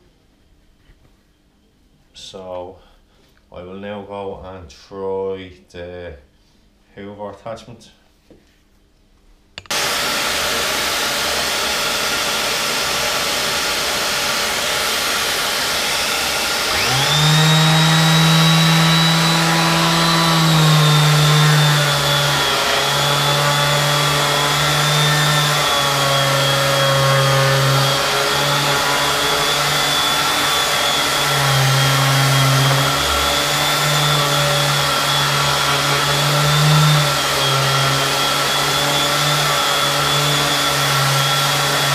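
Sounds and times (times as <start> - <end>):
electric sander whining: 9.7 - 41.9
vacuum cleaner rushing: 9.7 - 41.9.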